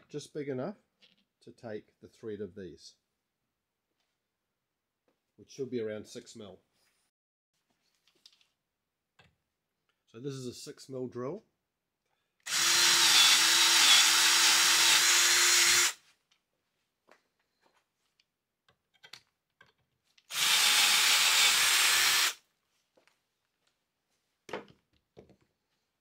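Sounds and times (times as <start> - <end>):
cordless drill motor whine: 12.5 - 16.0, 20.3 - 22.4.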